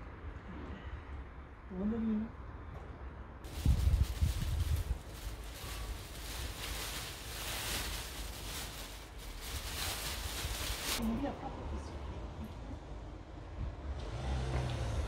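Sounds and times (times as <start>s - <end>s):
plastic bag rustling: 3.5s - 11.1s.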